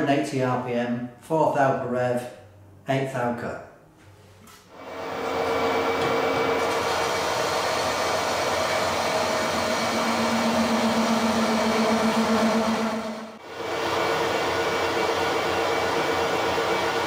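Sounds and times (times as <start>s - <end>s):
lathe running: 4.7s - 17.0s.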